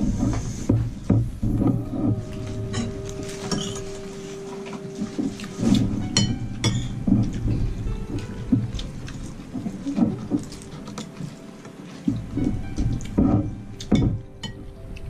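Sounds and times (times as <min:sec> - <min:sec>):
background music: 0:00.0 - 0:15.0
ceramic dishes and spoon clinking: 0:02.7 - 0:03.8.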